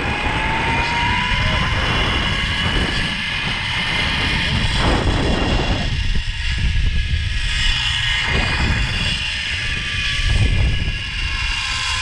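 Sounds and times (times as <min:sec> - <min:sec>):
pulleys whining on cable: 0:00.0 - 0:12.0
wind buffeting microphone: 0:00.0 - 0:12.0.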